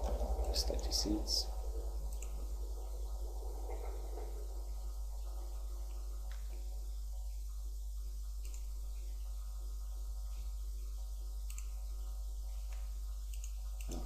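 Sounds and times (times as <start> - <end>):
low electrical hum: 0.0 - 14.0
computer mouse clicks: 2.1 - 2.4, 8.4 - 8.7, 11.4 - 11.8, 12.6 - 14.0.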